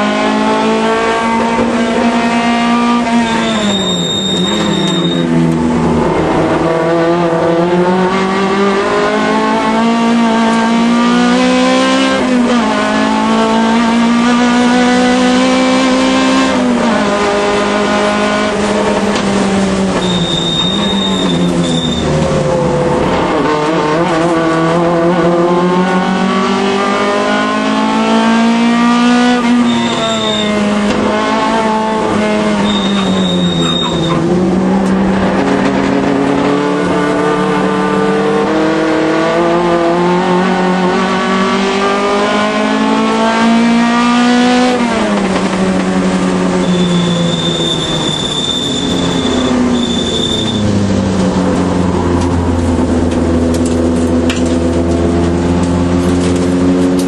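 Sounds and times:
race car engine shifting gears: 0:00.0 - 0:57.0
tyre squeals: 0:02.8 - 0:05.4, 0:19.9 - 0:22.2, 0:29.4 - 0:30.7, 0:32.2 - 0:34.3, 0:46.5 - 0:50.7.

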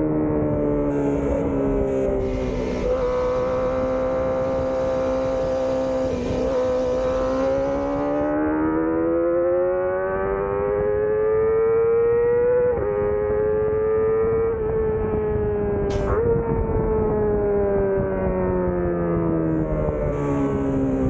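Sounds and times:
motorcycle engine whine: 0:00.0 - 0:21.0
gear change: 0:00.9 - 0:09.0.

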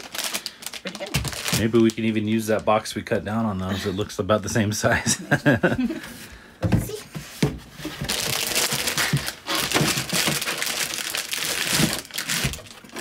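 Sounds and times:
plastic bag crinkling: 0:00.0 - 0:02.8, 0:08.0 - 0:13.0.

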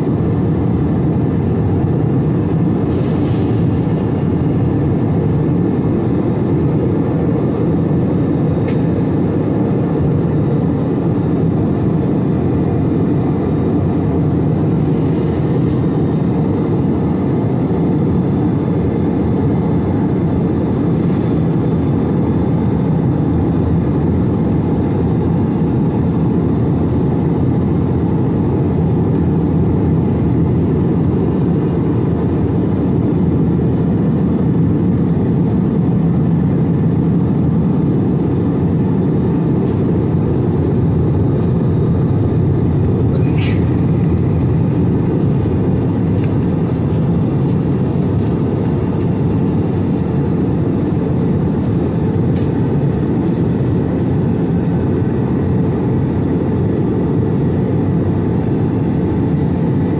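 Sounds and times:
jet engine roar in cabin: 0:00.0 - 0:59.9.

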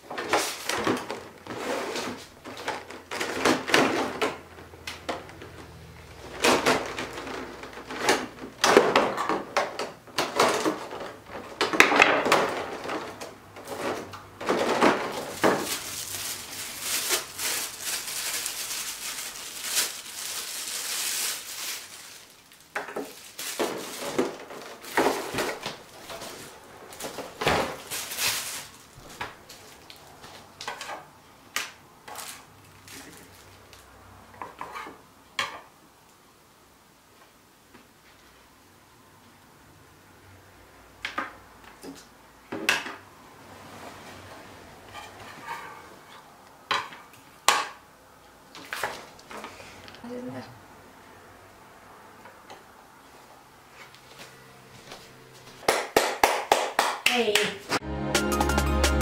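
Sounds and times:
plastic trays crinkling and clacking: 0:00.0 - 0:33.8.

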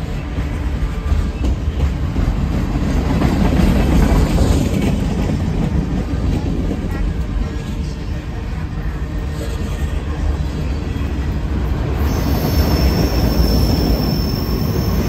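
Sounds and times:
rail clicks: 0:00.0 - 0:08.3, 0:11.4 - 0:15.0
train wheels rumbling on track: 0:00.0 - 0:15.0.

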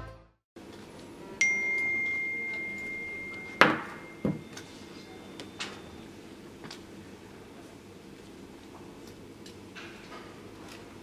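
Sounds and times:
smartphone alert chime: 0:01.4 - 0:06.0.

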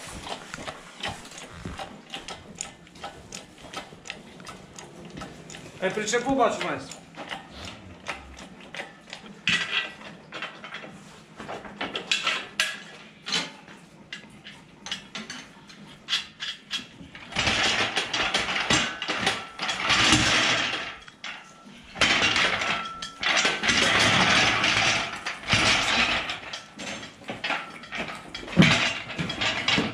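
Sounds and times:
metal clicks and clanks: 0:00.1 - 0:29.9
caster wheels rattling on floor: 0:17.2 - 0:21.3, 0:22.0 - 0:29.9.

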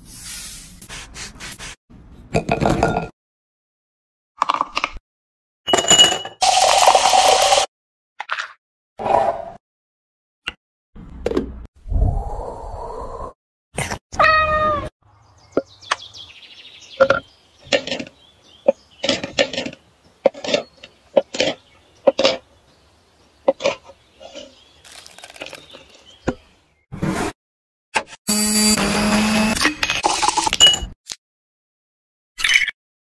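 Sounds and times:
cat meowing: 0:14.2 - 0:14.9.

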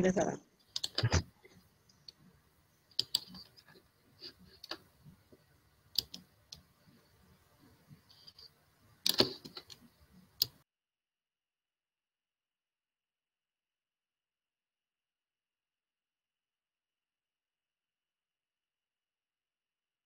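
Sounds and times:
mouse and keyboard clicks: 0:00.7 - 0:01.2, 0:03.0 - 0:03.6, 0:06.0 - 0:06.7, 0:09.0 - 0:09.8.

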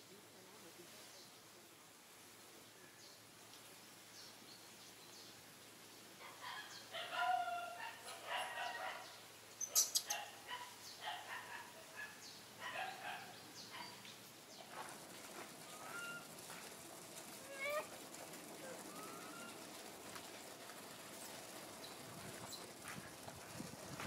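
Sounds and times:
macaques calling: 0:17.4 - 0:17.9, 0:18.7 - 0:19.6.

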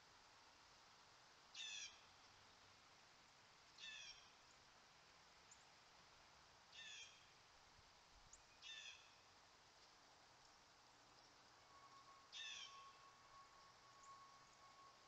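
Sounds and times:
bird calling: 0:08.6 - 0:09.1, 0:12.3 - 0:13.1
faint high chirps: 0:11.2 - 0:15.0.

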